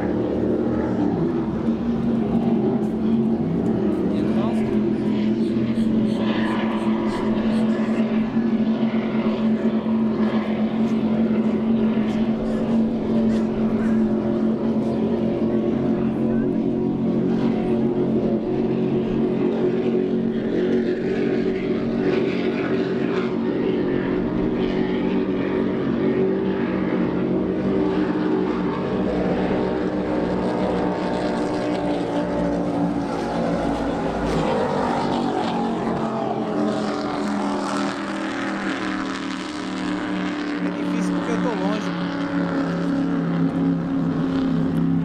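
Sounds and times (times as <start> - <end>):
powerboat engines droning: 0.0 - 45.0.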